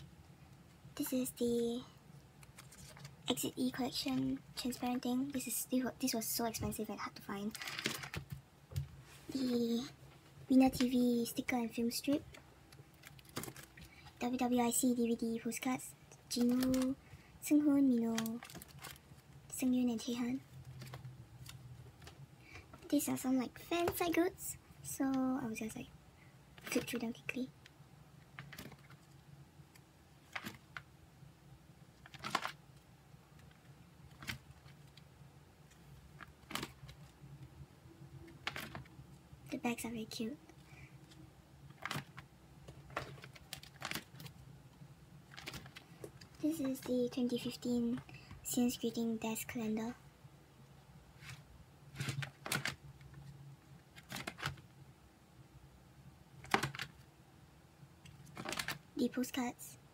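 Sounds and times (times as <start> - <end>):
plastic binder pages turning: 2.4 - 3.3, 7.4 - 8.4, 12.0 - 14.3, 16.3 - 17.0, 17.9 - 19.4, 20.6 - 22.2, 26.6 - 27.2, 28.2 - 29.2, 30.2 - 30.9, 32.0 - 32.8, 33.4 - 35.1, 35.7 - 37.2, 38.3 - 38.9, 41.0 - 44.4, 45.2 - 48.1, 51.2 - 53.3, 53.9 - 54.7, 56.4 - 57.1, 58.1 - 58.9.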